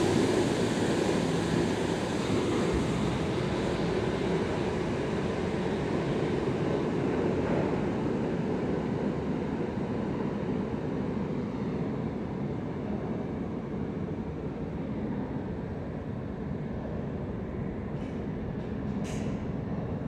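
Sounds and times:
train hiss: 0:00.0 - 0:06.9
subway train rumbling in tunnel: 0:00.0 - 0:20.0.

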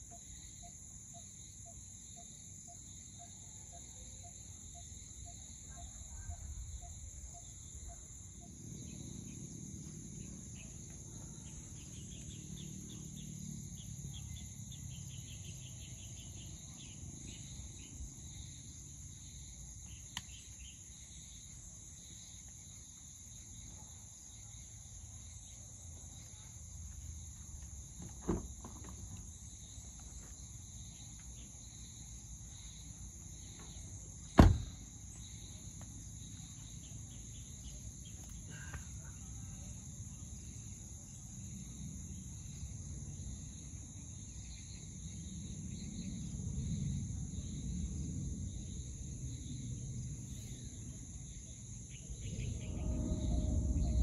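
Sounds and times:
fast pulsing insect trill: 0:00.0 - 0:25.8, 0:31.6 - 0:54.0
insects chirring: 0:00.0 - 0:54.0
sharp knock: 0:34.4 - 0:34.7.

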